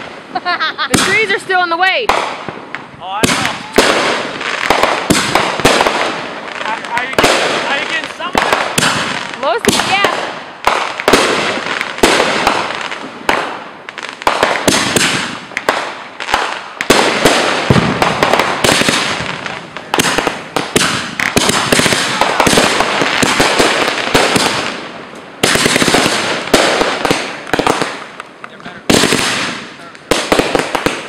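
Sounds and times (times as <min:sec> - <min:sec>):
firework bangs: 0:00.0 - 0:31.0
firework crackling: 0:00.0 - 0:31.0.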